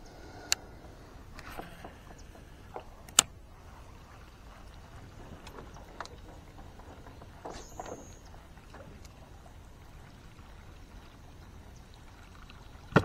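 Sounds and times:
water lapping: 0.0 - 13.0.

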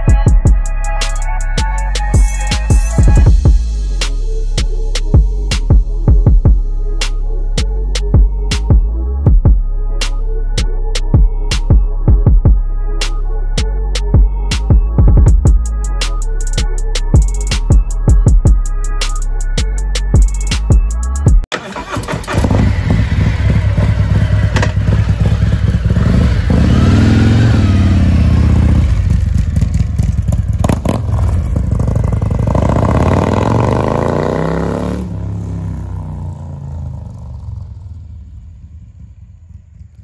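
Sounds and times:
motorcycle engine revving: 21.6 - 40.0.

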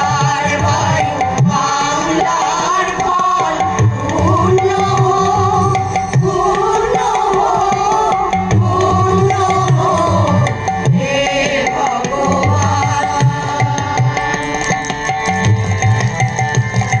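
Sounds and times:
women's chorus singing: 0.0 - 14.3
harmonium: 0.0 - 17.0
tabla strokes: 0.0 - 17.0.

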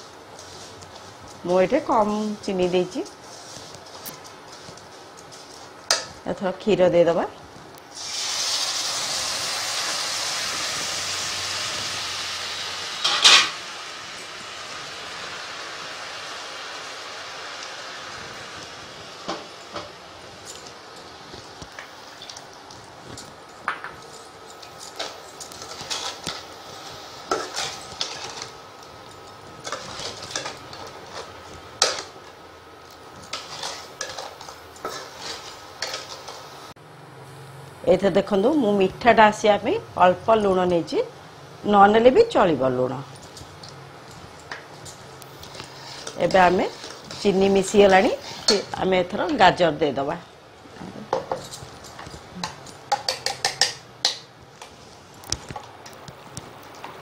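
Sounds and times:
milk sizzling in hot pan: 7.8 - 37.8, 41.5 - 57.0
metal spatula scraping pan: 45.5 - 48.7.

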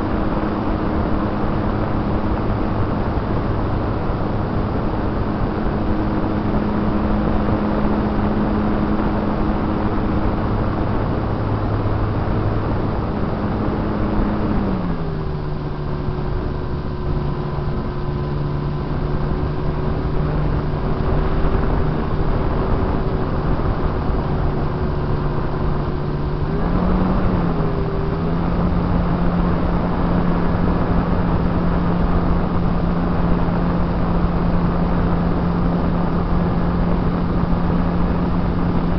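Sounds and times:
wind rush: 0.0 - 38.9.

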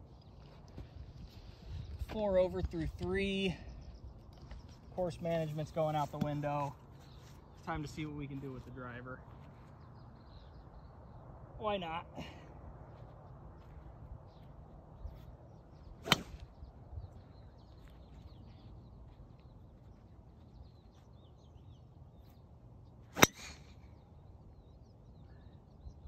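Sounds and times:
golf club striking ball: 16.0 - 16.4, 23.2 - 23.7.

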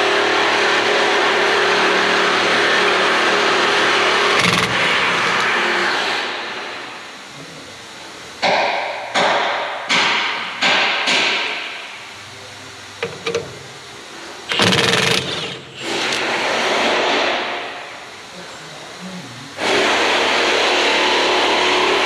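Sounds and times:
impact wrench hammering: 4.3 - 5.6, 8.4 - 11.8, 13.0 - 13.6, 14.5 - 16.3.

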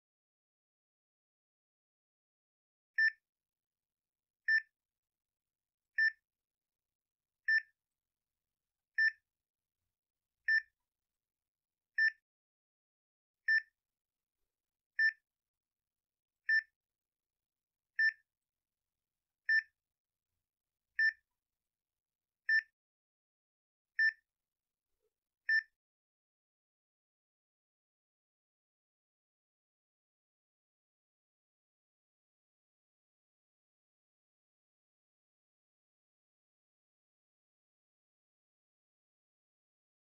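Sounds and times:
short single-pitched beeps: 6.0 - 6.2, 7.5 - 7.7, 12.0 - 12.2, 19.5 - 19.7.

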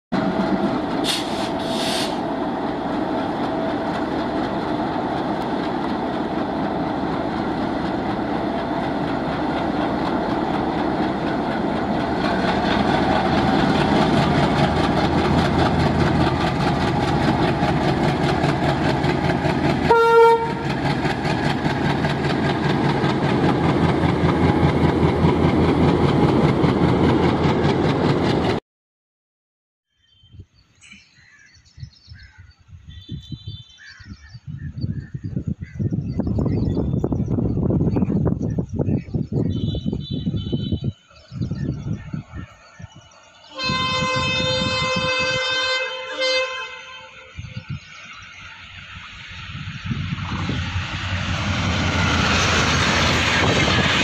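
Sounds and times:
locomotive engine rumble: 0.2 - 28.6, 47.3 - 54.0
locomotive horn blast: 19.8 - 20.8, 39.5 - 41.0, 43.5 - 47.3.

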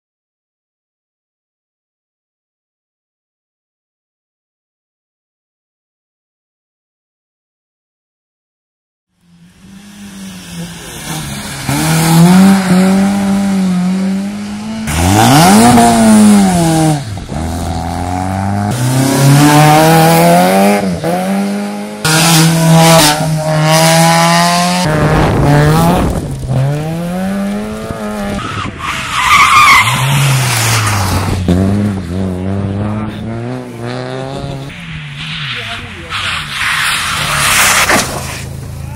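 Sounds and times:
rally car engines revving: 9.2 - 38.9.

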